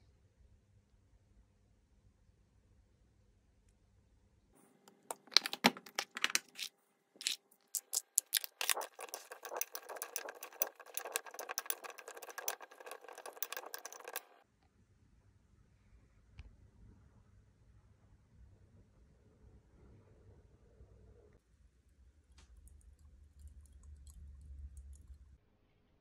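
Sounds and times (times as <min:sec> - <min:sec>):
sharp clicks and taps: 0:04.9 - 0:14.4
spoon clinking in glass bowl: 0:06.6 - 0:14.3.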